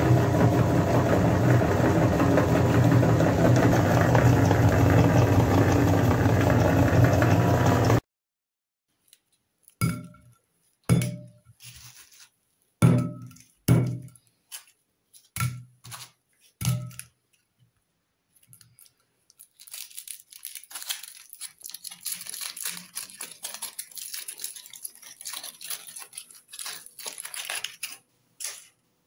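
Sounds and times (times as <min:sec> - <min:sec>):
aluminium foil crinkling and tearing: 0:11.6 - 0:12.4, 0:14.2 - 0:17.2, 0:18.3 - 0:28.8.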